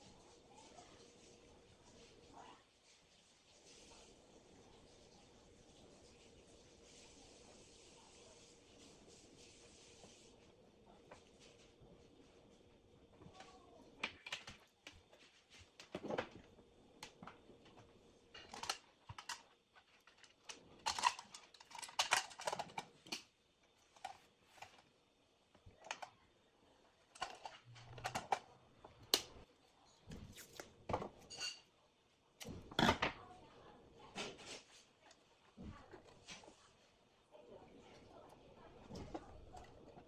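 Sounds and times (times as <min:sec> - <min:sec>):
clicks and scrapes of hands working: 0:17.0 - 0:24.9.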